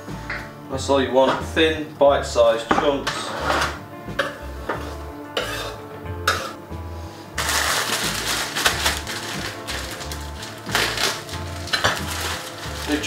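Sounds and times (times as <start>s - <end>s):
background music with steady beat: 0.0s - 13.0s
plastic bag rustling: 7.4s - 13.0s.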